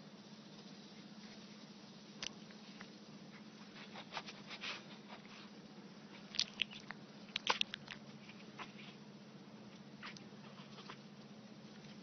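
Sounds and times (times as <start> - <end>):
puppy mouth smacking and clicking: 6.3 - 8.0.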